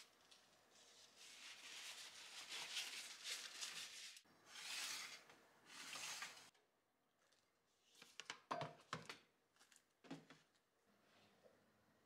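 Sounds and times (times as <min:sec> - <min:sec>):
paper towel rustling: 0:00.7 - 0:04.2.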